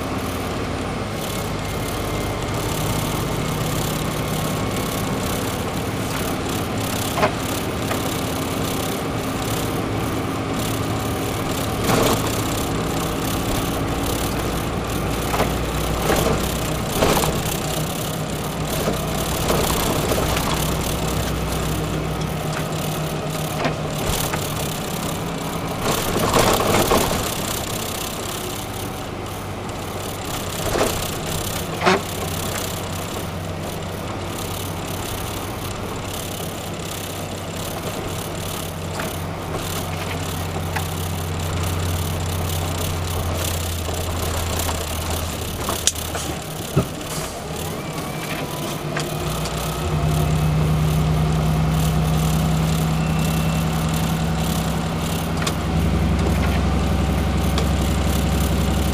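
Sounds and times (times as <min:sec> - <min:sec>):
truck diesel engine running: 0:00.0 - 0:58.9
rattles: 0:01.2 - 0:58.9.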